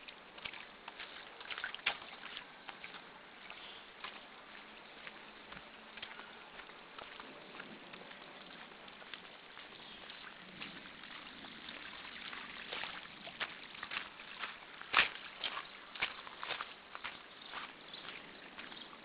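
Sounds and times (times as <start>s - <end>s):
footsteps crunching on wet gravel: 0.0s - 19.0s.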